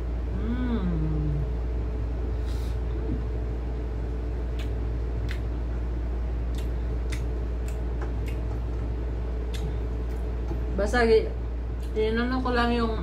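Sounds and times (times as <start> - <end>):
steady low hum: 0.0 - 13.0
chewing clicks and smacks: 4.5 - 10.7.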